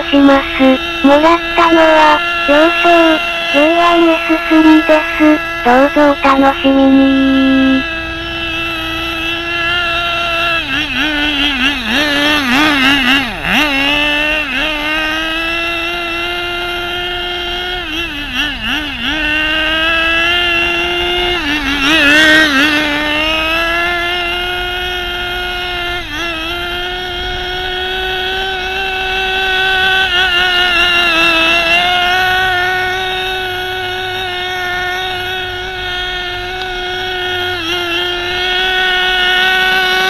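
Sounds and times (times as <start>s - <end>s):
small engine at high revs: 0.0s - 40.0s.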